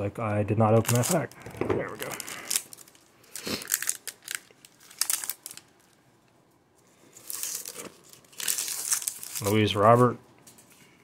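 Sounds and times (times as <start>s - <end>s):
plastic wrapper crinkling: 0.7s - 6.0s, 7.0s - 10.6s.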